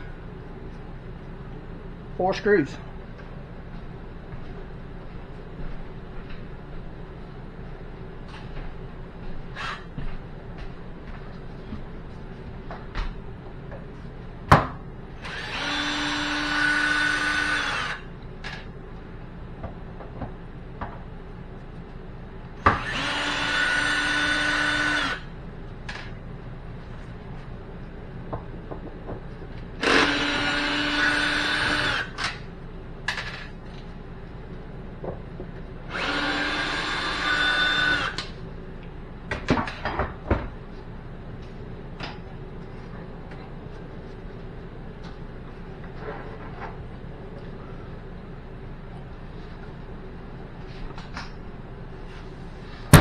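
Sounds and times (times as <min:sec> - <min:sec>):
cordless drill motor whine: 0:15.2 - 0:18.1, 0:22.8 - 0:25.3, 0:29.8 - 0:32.4, 0:35.9 - 0:38.3.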